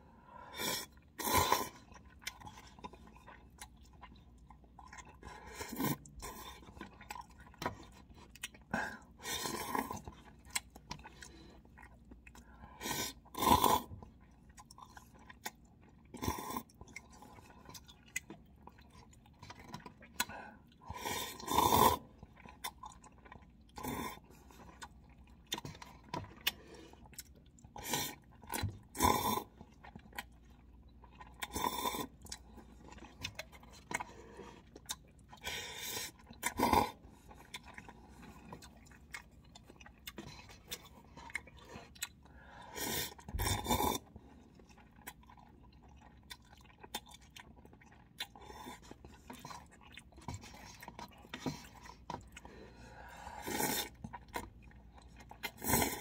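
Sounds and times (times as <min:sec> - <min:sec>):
chewing and mouth sounds: 0:00.6 - 0:56.0
noodle slurp: 0:48.0 - 0:56.0.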